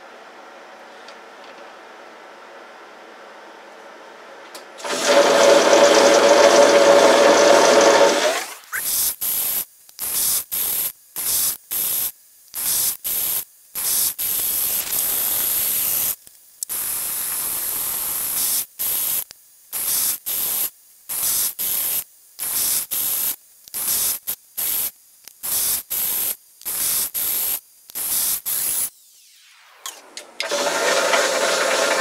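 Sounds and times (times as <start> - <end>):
air blow gun hissing: 13.8 - 18.7.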